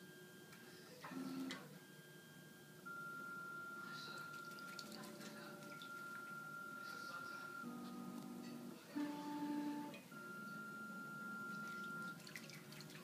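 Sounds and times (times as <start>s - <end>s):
birds splashing in water: 11.6s - 13.0s.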